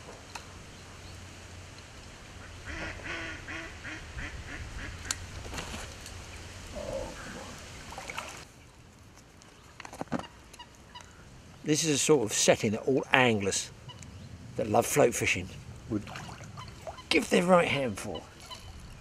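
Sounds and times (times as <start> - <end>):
waterfowl calling: 2.4 - 5.3, 10.2 - 11.3, 13.8 - 14.2, 16.1 - 19.0.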